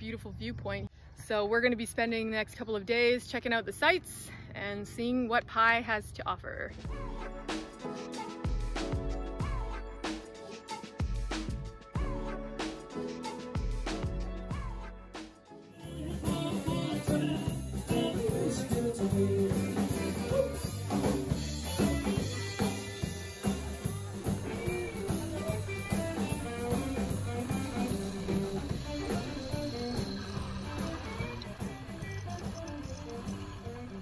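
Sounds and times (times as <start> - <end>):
guitar and drums music: 15.8 - 34.0.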